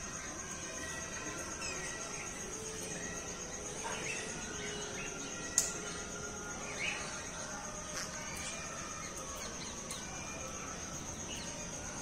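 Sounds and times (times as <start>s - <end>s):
birds chirping and calling: 0.0s - 12.0s.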